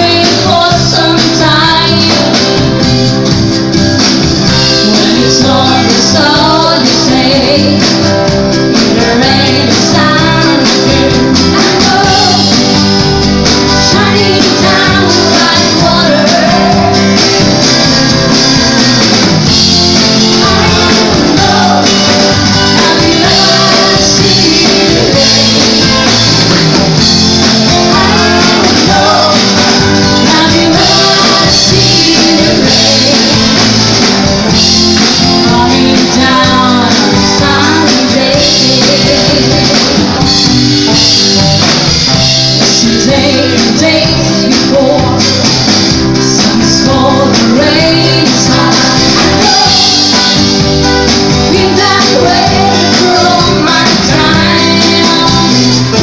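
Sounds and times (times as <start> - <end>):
woman singing: 0.0 - 2.7, 4.7 - 8.1, 8.8 - 12.8, 13.7 - 26.7, 27.4 - 33.8, 34.6 - 40.4, 42.6 - 45.6, 46.2 - 50.6, 51.4 - 56.0
drum kit: 0.0 - 56.0
acoustic guitars strummed: 8.0 - 35.9.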